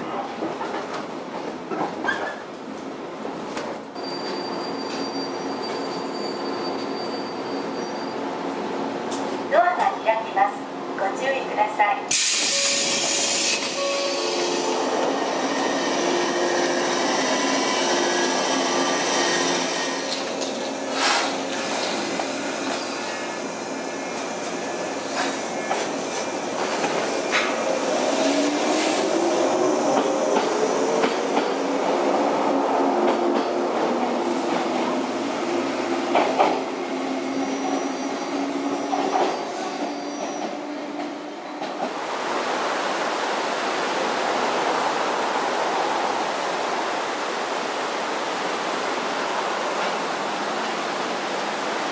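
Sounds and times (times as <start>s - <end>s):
train electrical equipment humming: 12.1s - 42.1s.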